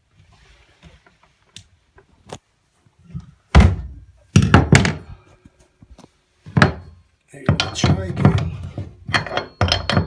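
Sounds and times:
heavy thunks on bathtub: 3.5s - 5.0s.

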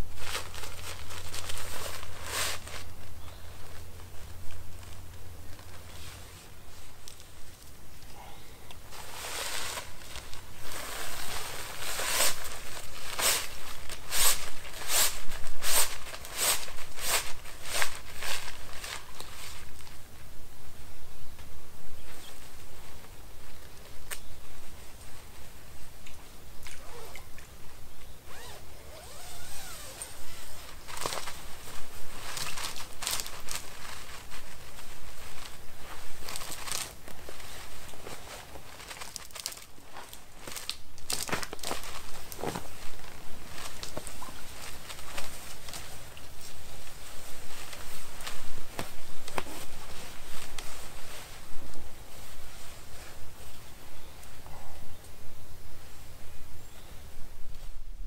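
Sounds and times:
hammock fabric swishing: 0.0s - 7.6s, 8.8s - 19.9s, 28.2s - 54.1s.

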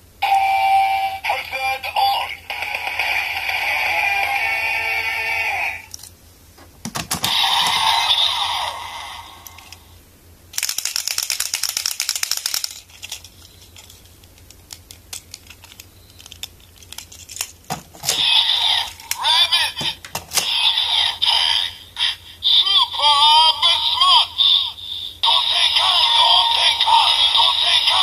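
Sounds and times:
electronic toy sound effects: 0.2s - 5.9s, 7.2s - 9.8s, 18.0s - 28.0s
plastic clicks: 10.6s - 18.2s.

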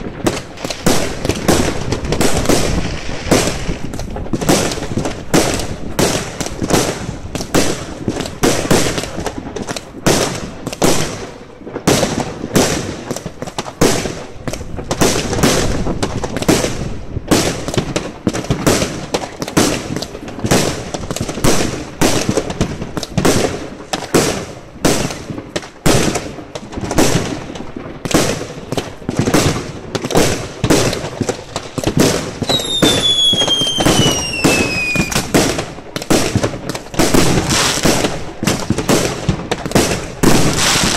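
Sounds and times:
whistling firework: 0.0s - 17.8s, 28.1s - 40.9s
fireworks bangs: 0.0s - 40.9s.

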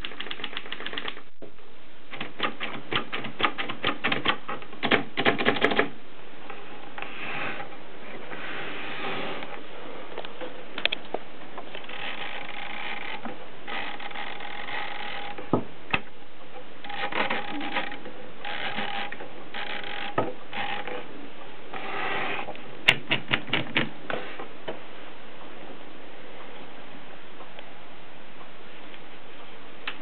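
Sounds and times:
typewriter mechanism whirring: 0.0s - 1.3s, 2.1s - 5.9s, 11.8s - 15.4s, 16.8s - 20.9s
typewriter sharp clicks: 0.0s - 1.3s, 2.1s - 5.9s.

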